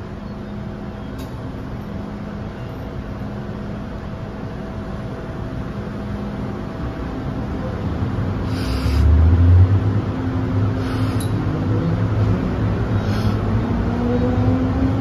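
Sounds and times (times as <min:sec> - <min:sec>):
traction whine rising in pitch: 0:06.0 - 0:15.0.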